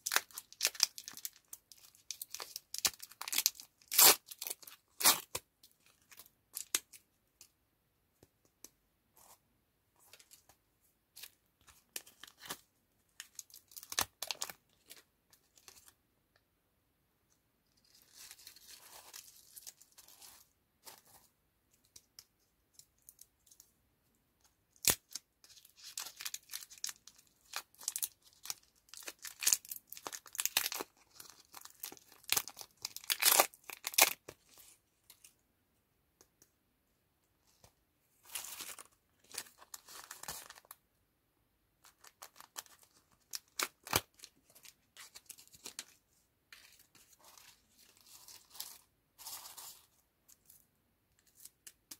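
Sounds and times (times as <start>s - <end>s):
candy wrappers crinkling and tearing: 0.0s - 7.0s, 24.7s - 34.5s, 41.8s - 46.0s
soft wrapper rustle: 37.4s - 40.8s, 41.8s - 51.9s.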